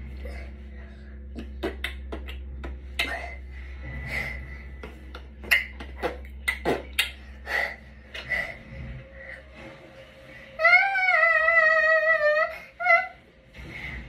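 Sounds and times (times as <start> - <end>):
steady low hum: 0.0 - 14.0
child beatboxing clicks and pops: 1.4 - 3.3, 5.1 - 7.2.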